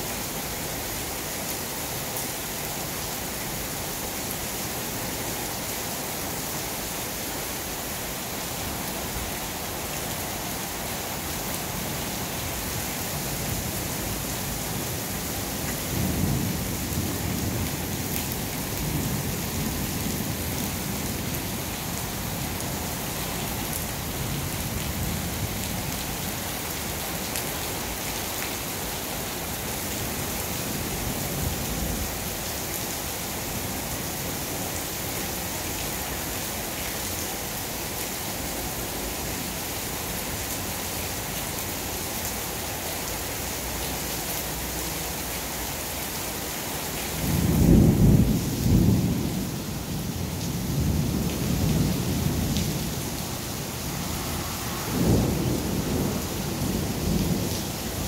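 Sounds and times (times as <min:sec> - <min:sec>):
heavy rain falling: 0:00.0 - 0:58.0
thunder rumbling: 0:54.0 - 0:58.0.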